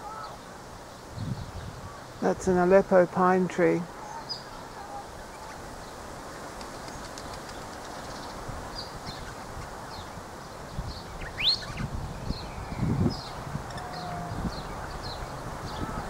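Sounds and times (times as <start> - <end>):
wind in pine branches: 0.0 - 16.0
high bird chirps: 11.0 - 15.9.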